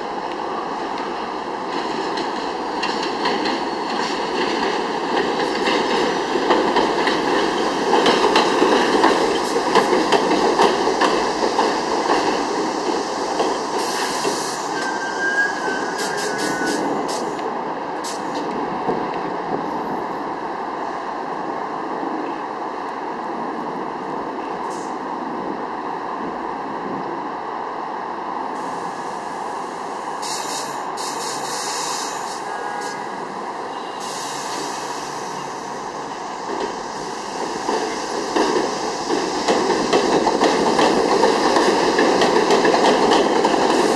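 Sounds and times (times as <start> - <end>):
train wheels rumbling on rails: 0.0 - 43.9
faint brake squeal: 14.0 - 16.8, 33.7 - 35.1.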